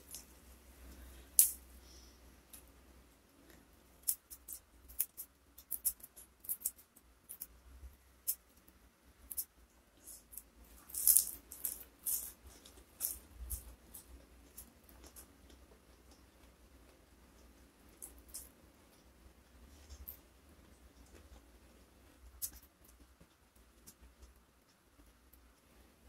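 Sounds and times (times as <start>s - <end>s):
herb sprigs snapping and crackling: 3.5s - 7.5s, 10.2s - 15.3s.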